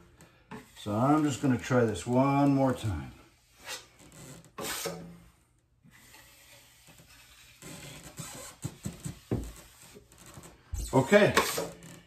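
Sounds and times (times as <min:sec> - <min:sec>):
drywall knife scraping mud: 0:04.6 - 0:05.2, 0:05.9 - 0:10.0, 0:10.9 - 0:11.7.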